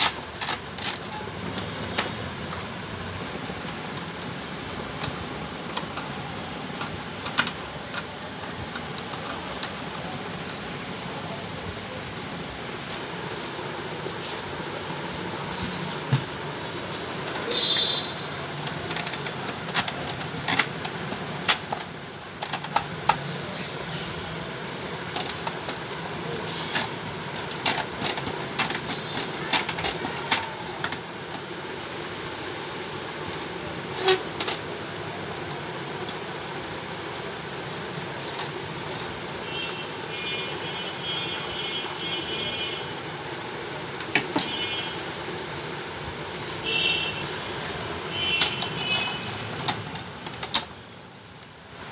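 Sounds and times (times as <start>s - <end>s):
plastic parts clicking: 0.0s - 11.1s, 15.5s - 39.8s, 46.1s - 50.8s
steady background hiss: 0.0s - 51.9s.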